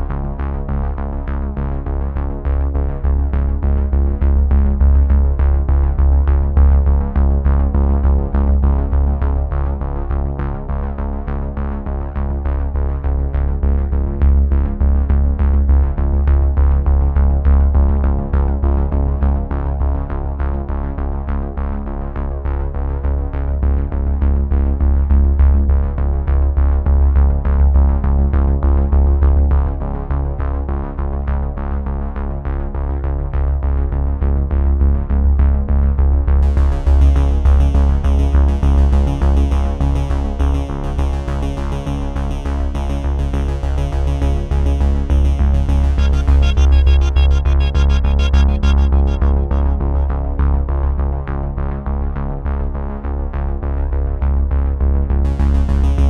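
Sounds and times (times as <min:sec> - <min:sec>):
steady regular beat: 0:44.6 - 0:50.7, 0:55.3 - 0:56.0
sustained held tones: 0:45.0 - 0:50.8.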